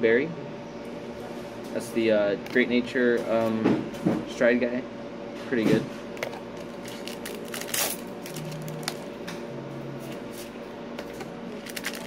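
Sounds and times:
foil wrapper crinkling and tearing: 0:06.6 - 0:09.1, 0:11.5 - 0:12.0.

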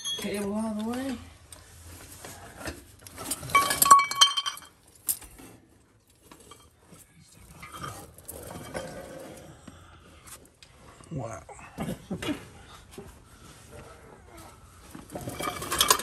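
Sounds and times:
ringing metal clatter: 0:00.0 - 0:00.7, 0:03.3 - 0:05.2, 0:15.1 - 0:16.0.

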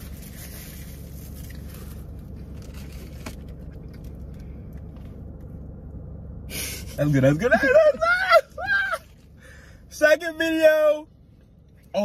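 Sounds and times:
car interior hum: 0:00.0 - 0:12.0.

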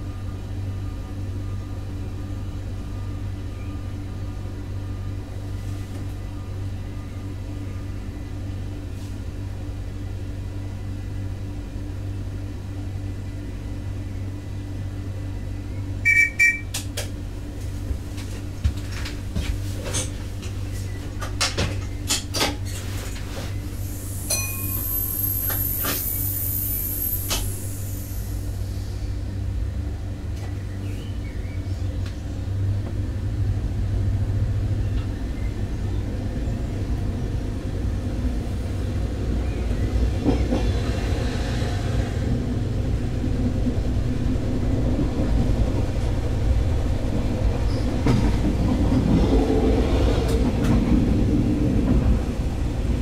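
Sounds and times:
train engine drone: 0:00.0 - 0:53.0
two-pitch electronic beep: 0:16.0 - 0:16.7
high-pitched squeal: 0:23.8 - 0:28.7.

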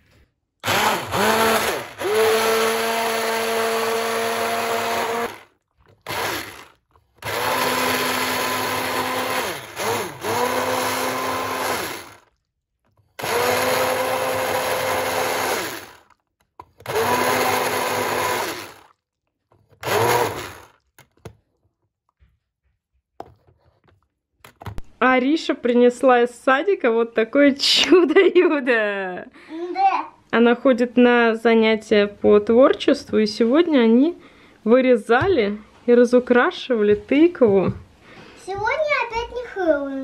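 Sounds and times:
stick blender motor whine: 0:00.6 - 0:12.4, 0:13.0 - 0:19.0, 0:19.7 - 0:21.1.

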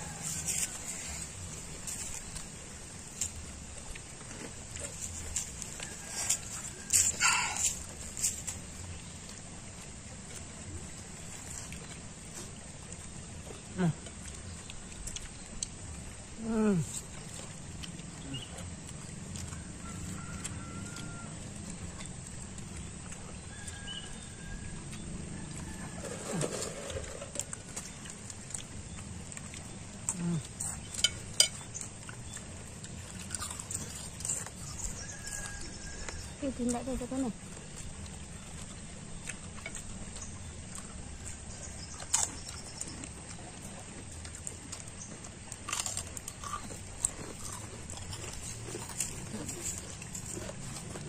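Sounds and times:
clicks and rustles of eating: 0:00.0 - 0:51.0
low background noise: 0:00.0 - 0:51.0
people chewing: 0:00.0 - 0:51.0.

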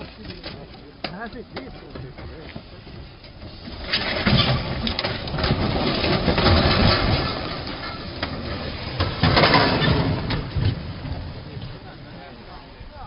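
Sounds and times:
truck crashing into water: 0:04.0 - 0:11.5.

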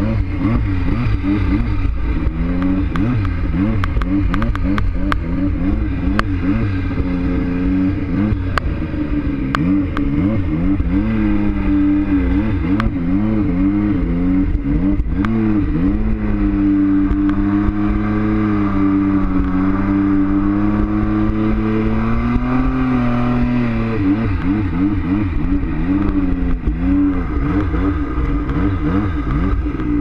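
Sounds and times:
snowmobile engine revving: 0:00.0 - 0:30.0
sharp clicks: 0:02.2 - 0:05.3.

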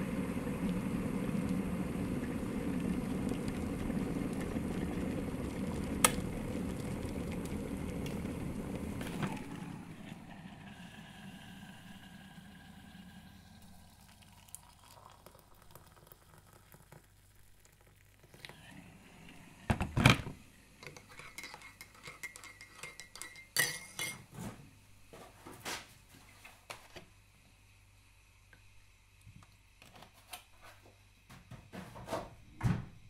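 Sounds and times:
teaspoon clinking in a cup: 0:20.8 - 0:24.2.

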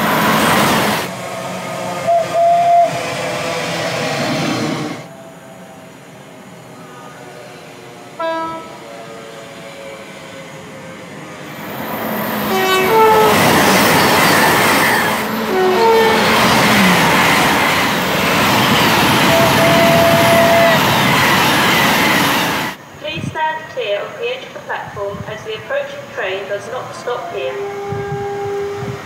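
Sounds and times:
train passing at speed: 0:00.0 - 0:29.0
train two-tone horn: 0:01.9 - 0:03.5, 0:06.6 - 0:10.1, 0:12.4 - 0:13.8, 0:15.0 - 0:17.0, 0:19.2 - 0:20.9, 0:27.1 - 0:29.0.

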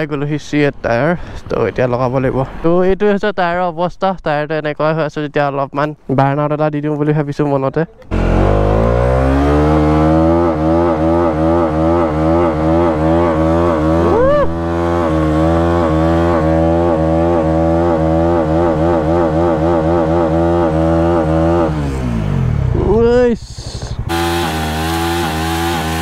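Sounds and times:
motorcycle engine revving: 0:08.1 - 0:23.0, 0:23.6 - 0:26.0
tyre squealing: 0:11.7 - 0:15.2.

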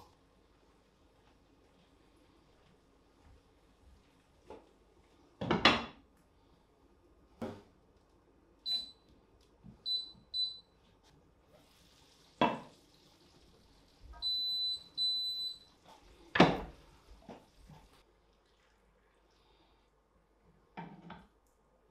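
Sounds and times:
touch control beeps: 0:08.7 - 0:09.0.

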